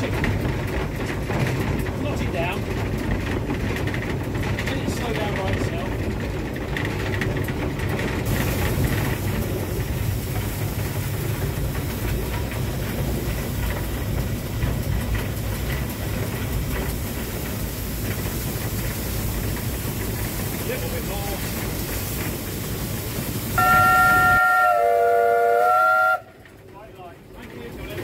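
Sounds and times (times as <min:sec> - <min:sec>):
light knocks and rattles: 0:00.0 - 0:23.5
steam locomotive cab rumble: 0:00.0 - 0:28.0.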